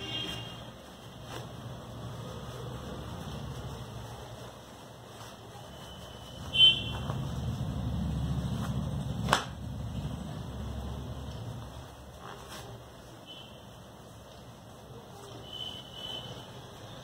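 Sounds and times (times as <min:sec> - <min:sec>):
low steady rumble: 0:06.4 - 0:12.0.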